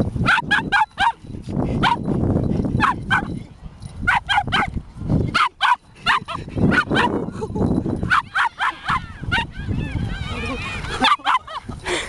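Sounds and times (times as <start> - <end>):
dog barking: 0.2 - 1.2, 2.8 - 3.3, 4.1 - 4.7, 5.4 - 7.1, 8.1 - 9.5, 11.0 - 11.5.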